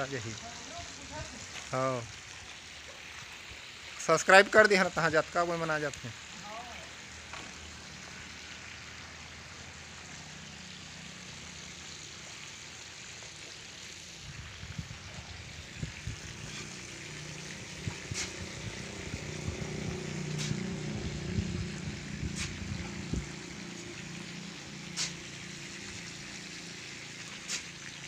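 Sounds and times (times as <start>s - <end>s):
wind buffeting microphone: 14.2s - 16.4s, 17.7s - 20.0s, 20.9s - 23.4s.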